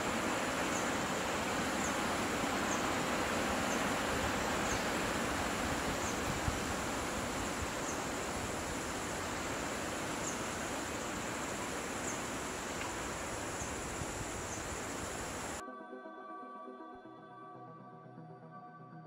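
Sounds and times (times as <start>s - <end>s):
constant hiss: 0.0s - 15.6s
high insect drone: 0.0s - 15.6s.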